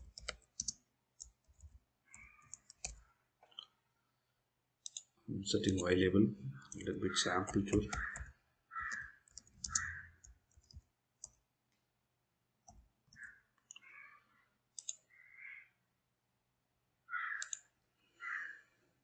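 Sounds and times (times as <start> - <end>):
computer keyboard typing: 0.0 - 3.6, 4.8 - 5.1, 6.7 - 11.4, 14.8 - 15.0, 17.4 - 17.6.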